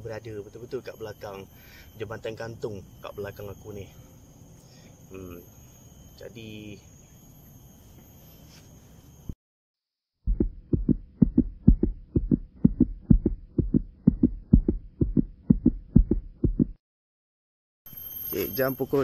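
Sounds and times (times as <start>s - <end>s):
faint insect buzzing: 0.0s - 9.4s
heartbeat-like thumping: 10.2s - 16.8s.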